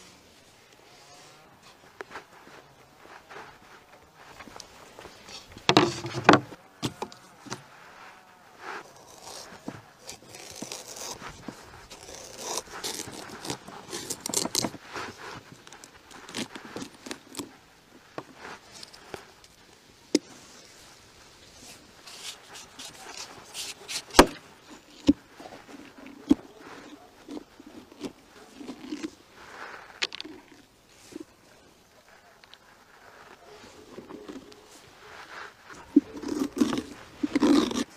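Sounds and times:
knife scraping through pumpkin: 8.6 - 17.5, 21.6 - 31.3, 33.1 - 37.9
spoon scraping out seeds: 35.8 - 37.9.

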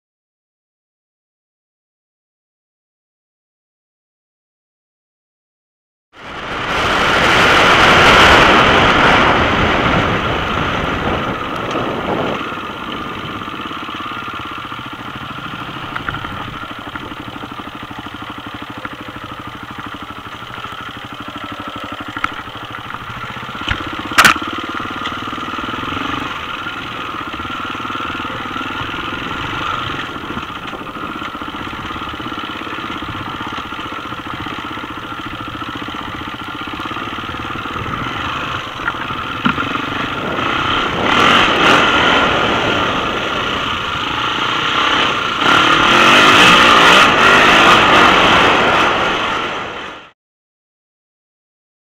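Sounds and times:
motorbike engine revving: 6.2 - 50.1
sharp crack: 22.0 - 25.5.

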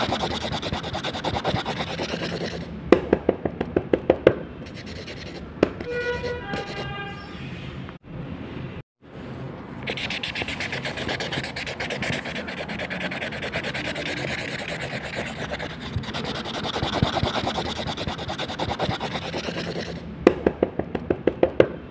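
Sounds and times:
pen tips scratching on paper: 0.0 - 2.7, 4.7 - 6.9, 9.8 - 20.0.

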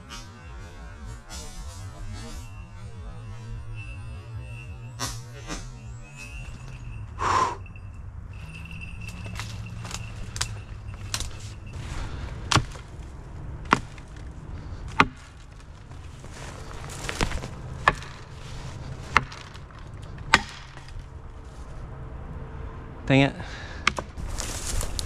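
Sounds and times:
sharp dry woody knocks and snaps: 20.2 - 21.0, 23.8 - 24.2.

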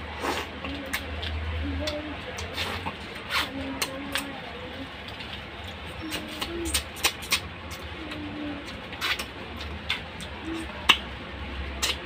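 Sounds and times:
wet mouth clicks and lip smacks: 6.7 - 7.8, 9.0 - 11.1, 11.8 - 12.0.

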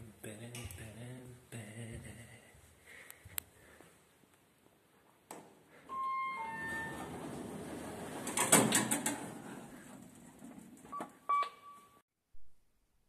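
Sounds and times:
short beeps: 5.9 - 7.1, 11.0 - 12.0
lift doors sliding: 5.9 - 11.1.

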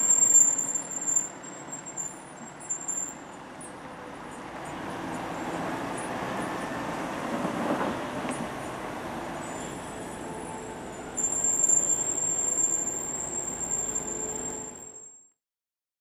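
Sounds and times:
high-pitched whine: 0.0 - 3.3, 9.4 - 15.3
diesel engine rumble: 0.0 - 14.9.

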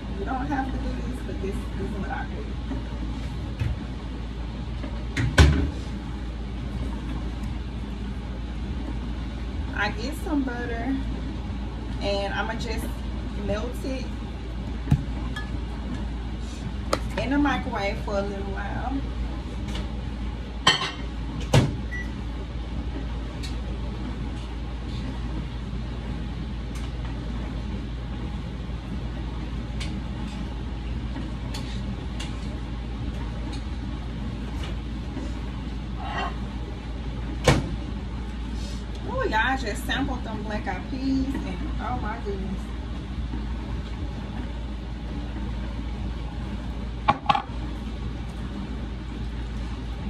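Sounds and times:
dishwasher running: 0.0 - 50.0
kitchen appliances humming: 0.0 - 50.0
dishes clinking: 20.7 - 21.1.

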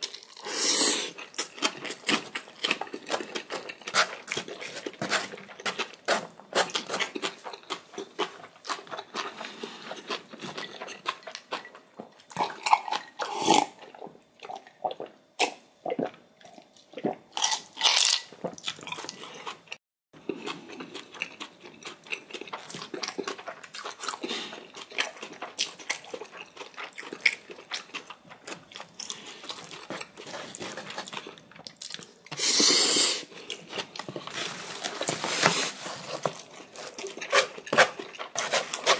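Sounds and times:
crunchy chewing of noodles: 0.0 - 38.9.

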